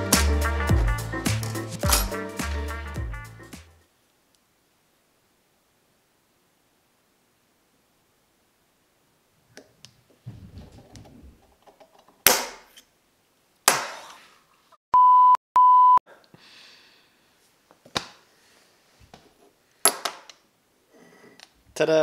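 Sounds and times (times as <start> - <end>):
punch striking metal cover: 1.4 - 2.2, 12.2 - 12.7
electronic censor bleeps: 15.0 - 16.0.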